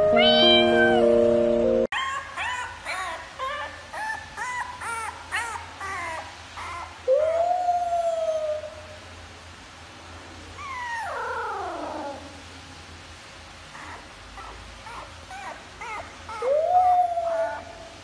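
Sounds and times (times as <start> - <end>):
puppy howling and yelping: 1.9 - 9.0, 10.6 - 12.4, 13.7 - 18.0.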